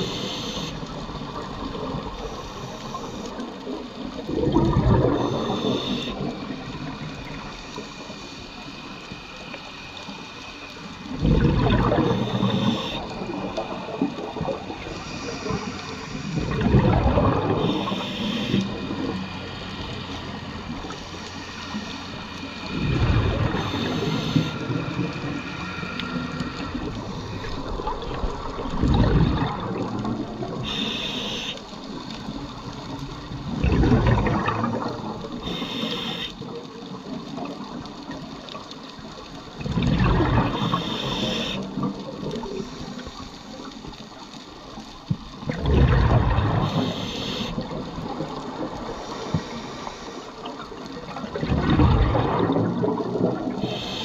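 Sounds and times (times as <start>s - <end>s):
regulator inhale hiss: 0.0s - 1.0s, 2.1s - 3.6s, 5.2s - 11.1s, 12.0s - 14.0s, 14.8s - 16.6s, 17.6s - 28.0s, 30.5s - 32.0s, 35.4s - 36.5s, 40.4s - 41.8s, 42.4s - 43.5s, 46.6s - 47.7s, 48.7s - 50.6s, 53.5s - 54.0s
bubbling exhalations underwater: 4.2s - 6.5s, 11.1s - 14.8s, 16.4s - 18.0s, 22.7s - 25.1s, 26.7s - 30.7s, 33.4s - 35.6s, 39.6s - 42.6s, 45.4s - 48.8s, 51.1s - 53.8s.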